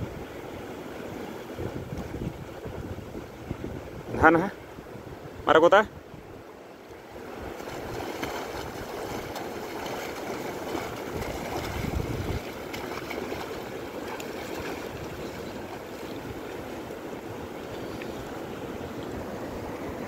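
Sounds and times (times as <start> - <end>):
fast-flowing water rushing: 6.4 - 20.0.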